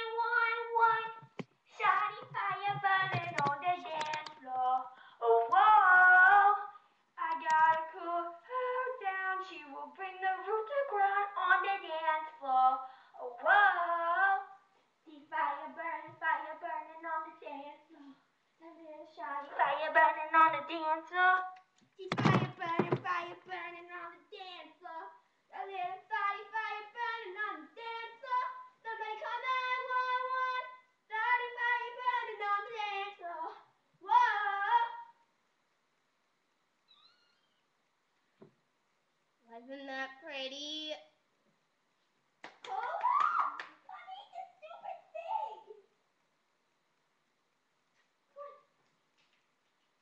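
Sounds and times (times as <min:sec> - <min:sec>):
girl singing in a high voice: 0:00.0 - 0:35.2
girl singing high: 0:22.5 - 0:35.2.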